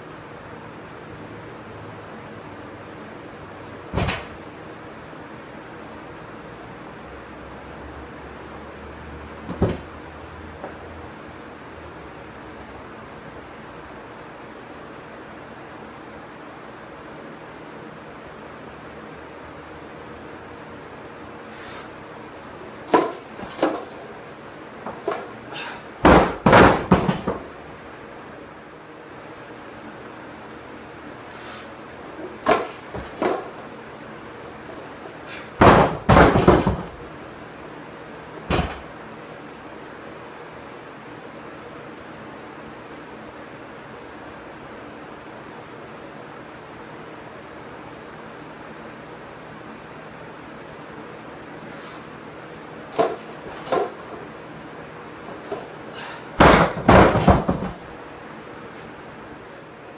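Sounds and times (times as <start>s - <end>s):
barbell crashing onto wooden blocks: 4.0s - 4.4s, 22.9s - 24.0s, 26.0s - 27.5s, 32.4s - 33.6s, 35.6s - 37.1s, 38.5s - 38.9s, 52.9s - 54.2s, 56.4s - 57.9s
barbell bouncing bangs: 22.9s - 24.1s, 26.0s - 27.5s, 32.4s - 33.6s, 35.6s - 37.0s, 56.4s - 57.9s
knock: 56.4s - 57.8s.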